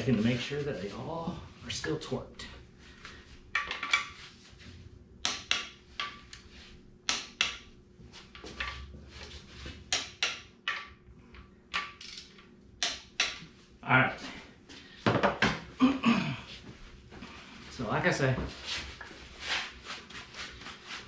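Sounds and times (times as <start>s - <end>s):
torque wrench clicking: 12.0s - 13.4s.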